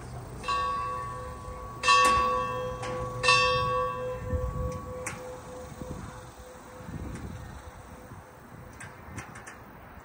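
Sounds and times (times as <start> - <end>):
metal strikes ringing: 0.4 - 7.1.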